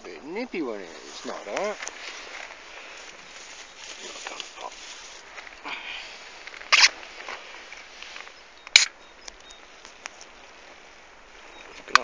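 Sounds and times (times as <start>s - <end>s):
light ticks: 8.0s - 10.3s
sharp click: 8.6s - 9.6s.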